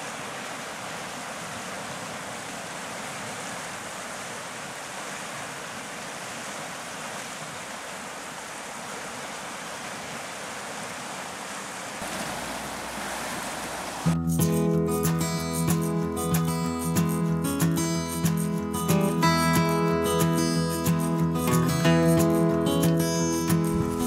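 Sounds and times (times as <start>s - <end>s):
river water rushing: 0.0s - 14.2s.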